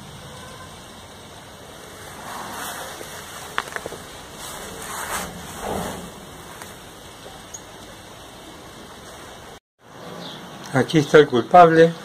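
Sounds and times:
faint rustling: 0:01.8 - 0:08.1.

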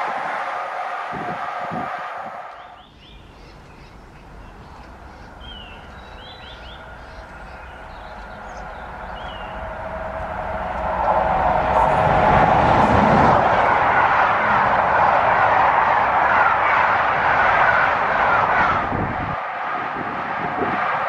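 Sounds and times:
train coaches rumbling: 0:00.0 - 0:21.0
small birds chirping: 0:02.5 - 0:09.8
low rumble: 0:03.0 - 0:16.2.

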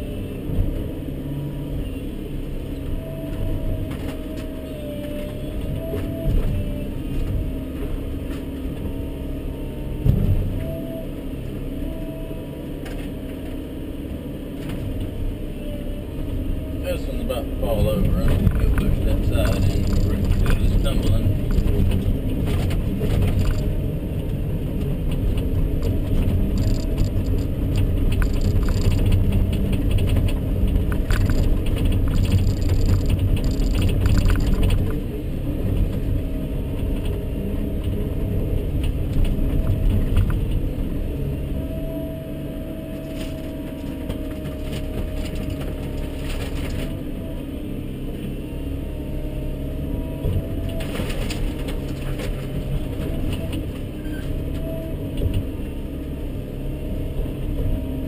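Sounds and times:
excavator engine and hydraulics: 0:00.0 - 0:58.0
clanks and rattles: 0:18.2 - 0:23.8, 0:24.8 - 0:35.0.

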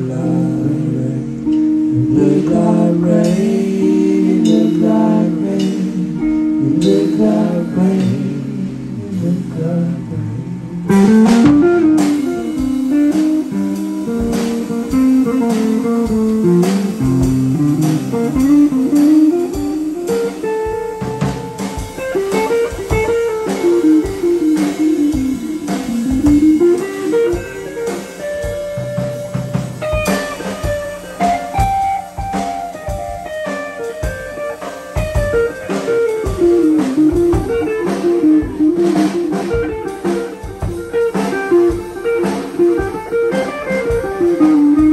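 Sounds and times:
electric guitar blues solo: 0:00.0 - 0:44.9
drum and cymbal hits: 0:01.3 - 0:44.9.

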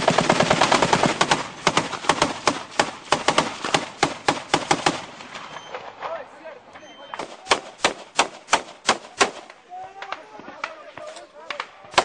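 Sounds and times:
gunshots: 0:00.0 - 0:06.2, 0:07.1 - 0:09.6, 0:11.7 - 0:12.0.

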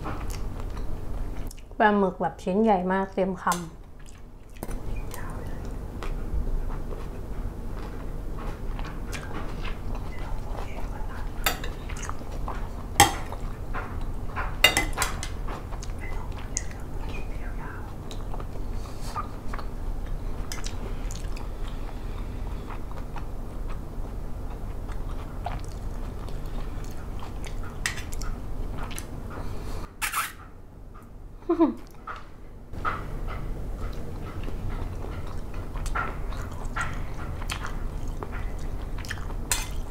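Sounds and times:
person chewing: 0:03.9 - 0:14.2, 0:18.0 - 0:29.1, 0:33.8 - 0:39.9
cutlery clinking on plate: 0:14.6 - 0:15.4, 0:39.5 - 0:39.8.

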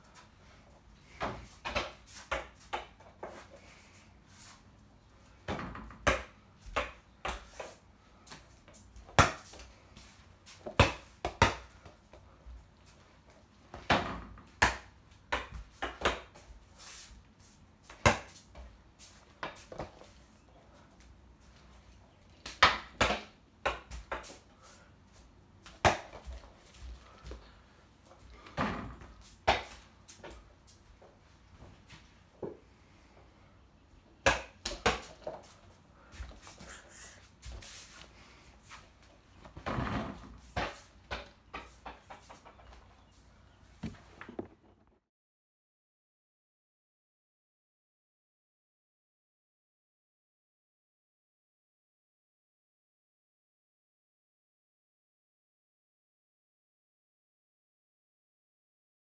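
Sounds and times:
ball hitting hoop and door: 0:01.2 - 0:03.3, 0:05.4 - 0:07.7, 0:09.0 - 0:09.5, 0:10.6 - 0:11.8, 0:13.7 - 0:16.4, 0:17.9 - 0:18.6, 0:28.4 - 0:29.8, 0:39.5 - 0:42.6, 0:43.8 - 0:44.9
ball bouncing on floor: 0:43.8 - 0:44.8.

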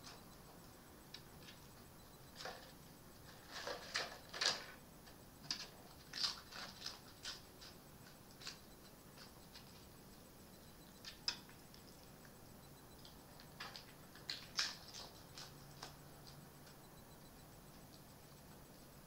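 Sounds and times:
fox chewing and crunching: 0:02.4 - 0:10.3, 0:11.0 - 0:16.8, 0:17.6 - 0:19.0.

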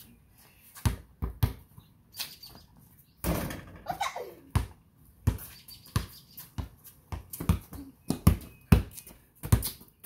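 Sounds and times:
ball bouncing on concrete: 0:00.7 - 0:01.9, 0:03.2 - 0:10.0
basketball hitting hoop: 0:03.2 - 0:03.9.

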